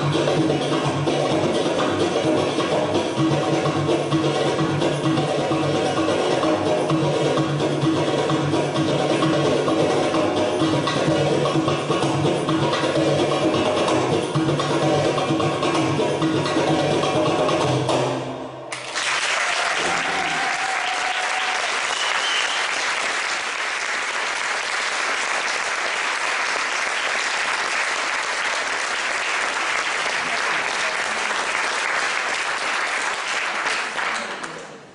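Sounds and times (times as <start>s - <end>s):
drum solo dance music: 0.0s - 18.1s
audience applauding: 18.7s - 34.9s.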